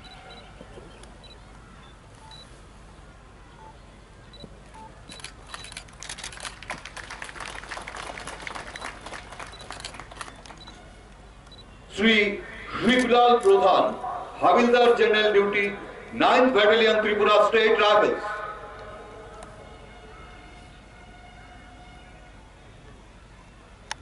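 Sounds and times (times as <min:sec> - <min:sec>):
scattered clapping: 0:05.9 - 0:10.6.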